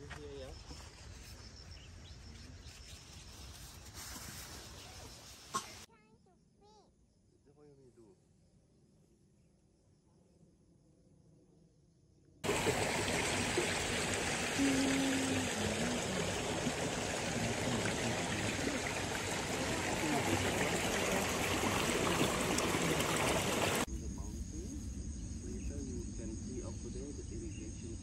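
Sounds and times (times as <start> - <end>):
water rushing down a channel: 12.4 - 23.9.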